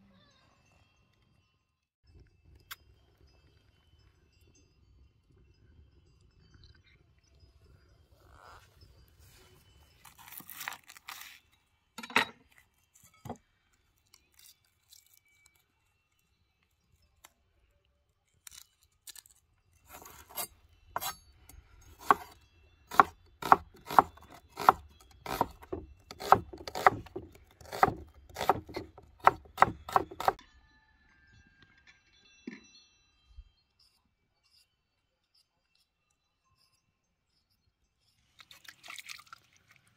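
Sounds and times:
knife slicing onion on board: 19.9s - 21.2s, 22.0s - 30.4s.

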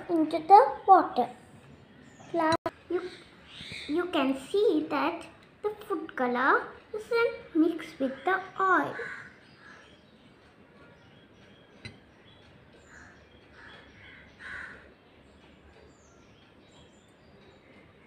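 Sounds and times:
harsh bird calls: 7.9s - 18.0s.

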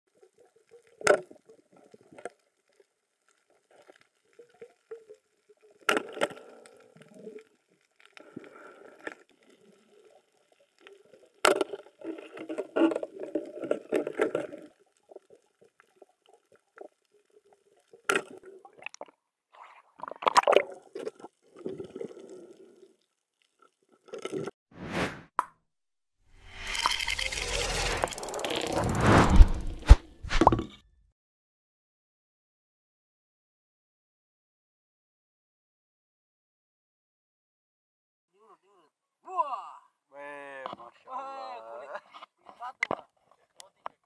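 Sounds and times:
water bubbling and gurgling: 3.6s - 23.0s, 26.4s - 30.6s.

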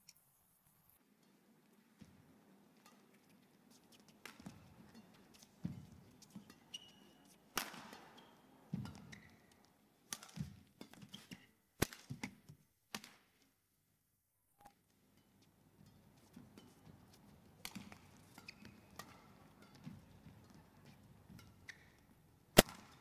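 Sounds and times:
shoes squeaking on court: 3.7s - 7.4s, 8.1s - 9.7s, 10.9s - 11.5s, 16.3s - 22.2s
rackets striking shuttlecock: 3.9s - 12.4s, 16.6s - 23.0s.

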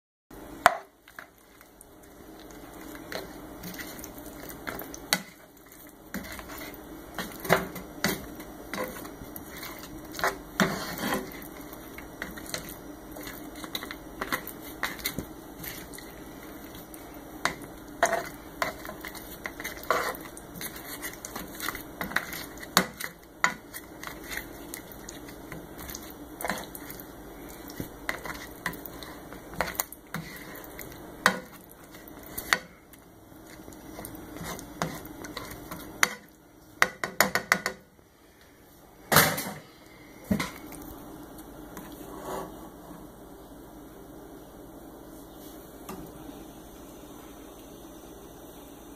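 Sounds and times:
pan sizzling: 0.4s - 37.9s
utensil scraping a skillet: 0.6s - 32.8s, 33.4s - 36.4s.

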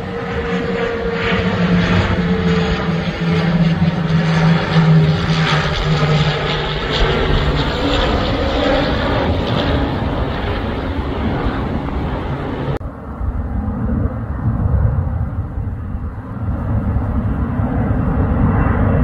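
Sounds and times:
low hum: 0.0s - 19.0s
propeller airliner drone: 0.0s - 19.0s.

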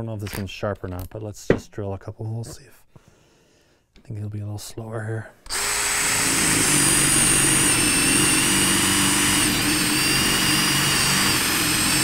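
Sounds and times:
cordless drill boring into wood: 5.5s - 12.0s.

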